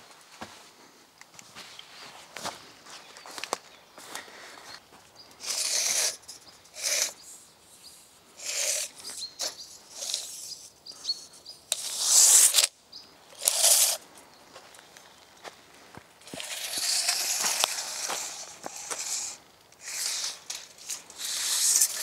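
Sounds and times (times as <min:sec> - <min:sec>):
footsteps crunching on dry leaves: 0:01.4 - 0:06.2, 0:14.5 - 0:19.4
small birds chirping: 0:01.7 - 0:22.0.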